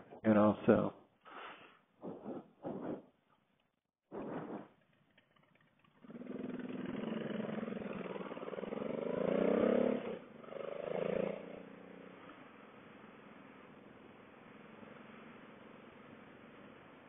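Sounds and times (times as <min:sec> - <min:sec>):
motorcycle engine accelerating: 0:05.5 - 0:17.0.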